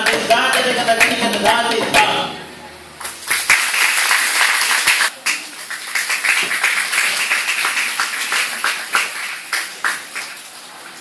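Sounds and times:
audience applauding: 0:03.0 - 0:10.4.

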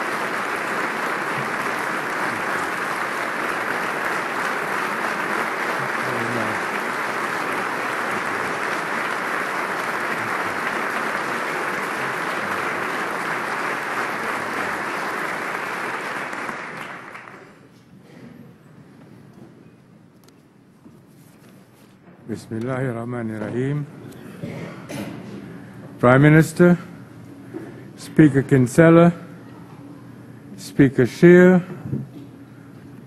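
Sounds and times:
crowd applauding: 0:00.0 - 0:17.7.

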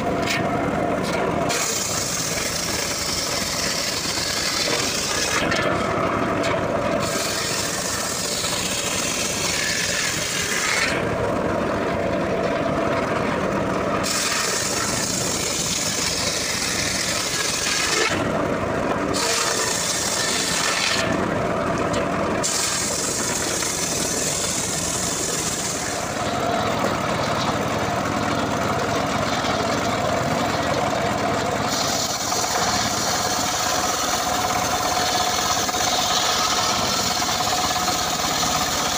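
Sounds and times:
engine-driven sawmill running: 0:00.0 - 0:38.9
saw blade hissing through wood: 0:01.5 - 0:05.4, 0:07.0 - 0:11.0, 0:14.0 - 0:18.2, 0:19.1 - 0:21.1, 0:22.4 - 0:26.2, 0:31.7 - 0:38.9.

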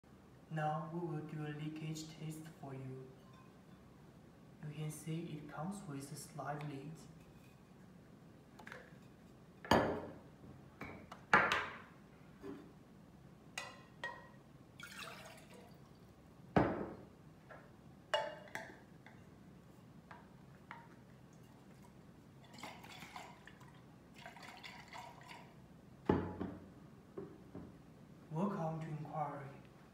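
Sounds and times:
water poured into a metal mug: 0:14.8 - 0:16.0, 0:22.4 - 0:25.5.

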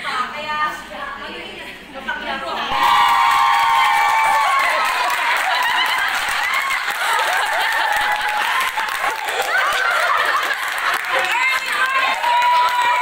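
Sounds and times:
voices calling out and cheering: 0:02.5 - 0:13.0
people clapping: 0:02.7 - 0:13.0.

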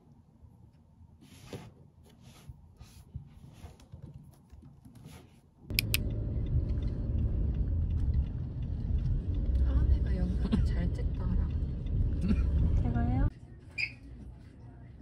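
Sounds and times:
sharp clicks: 0:05.7 - 0:09.6
car road and engine rumble: 0:05.7 - 0:13.3.

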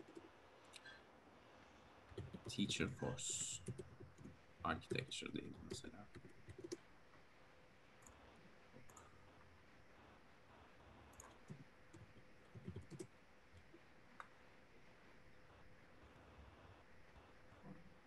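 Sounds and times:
faint keyboard keystrokes and clicks: 0:00.0 - 0:01.0, 0:02.1 - 0:06.9, 0:08.0 - 0:09.2, 0:11.0 - 0:14.4.

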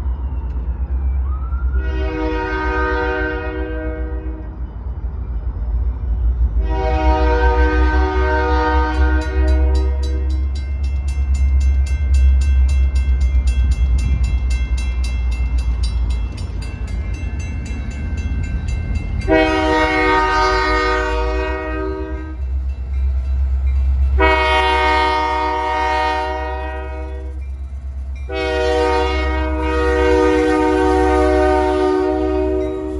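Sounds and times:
locomotive air horn blasts: 0:01.7 - 0:04.6, 0:06.6 - 0:10.5, 0:19.2 - 0:22.4, 0:24.2 - 0:27.4, 0:28.3 - 0:32.9
crossing bell ringing: 0:08.7 - 0:32.9.

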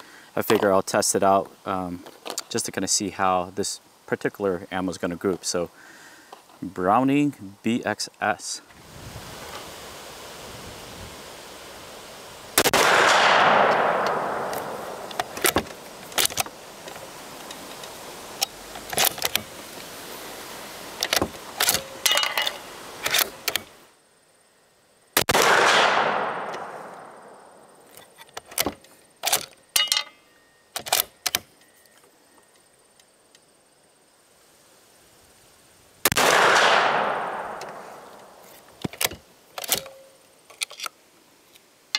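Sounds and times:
wind hiss: 0:00.0 - 0:41.9
shotgun shots with echo: 0:12.6 - 0:15.1, 0:25.2 - 0:27.2, 0:36.1 - 0:38.1
metallic clicks of shotgun bolt: 0:13.7 - 0:19.5, 0:21.0 - 0:23.7, 0:27.9 - 0:30.1, 0:30.8 - 0:31.5, 0:36.6 - 0:41.0.

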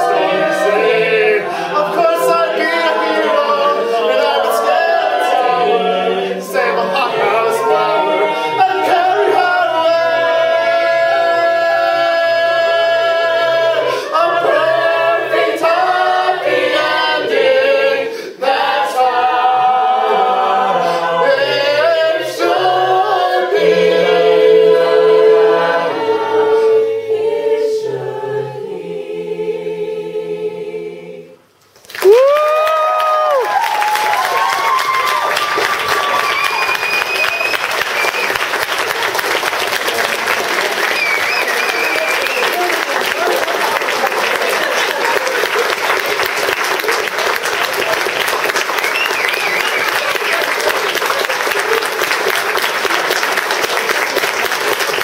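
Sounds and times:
a cappella group singing in harmony: 0:00.0 - 0:31.6.

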